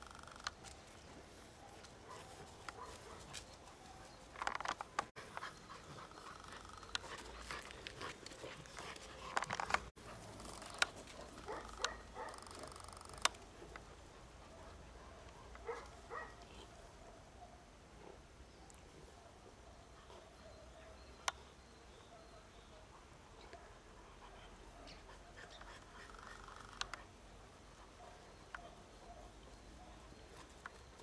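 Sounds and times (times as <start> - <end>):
puppies panting: 5.1 - 12.3, 23.8 - 28.2
sharp clicks: 11.6 - 13.9.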